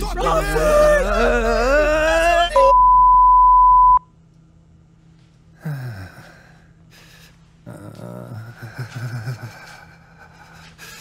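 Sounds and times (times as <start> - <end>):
cartoon rabbit crying in pain: 0.0 - 2.6
high censor bleep tone: 2.6 - 4.1.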